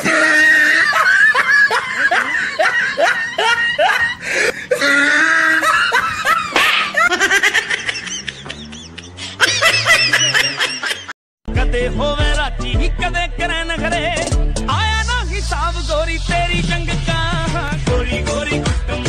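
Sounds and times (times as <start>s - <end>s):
burst of laughter: 5.3s - 11.1s.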